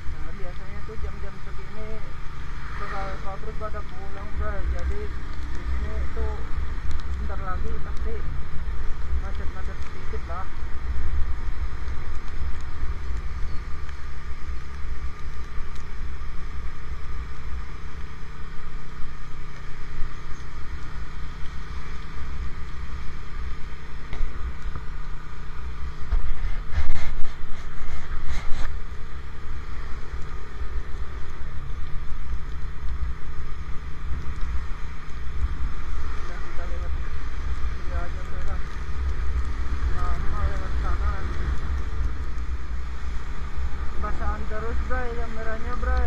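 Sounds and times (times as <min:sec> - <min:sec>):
motorcycle engine humming: 0:00.0 - 0:46.0
tyres hissing on wet road: 0:00.0 - 0:46.0
wind buffeting microphone: 0:00.0 - 0:46.0.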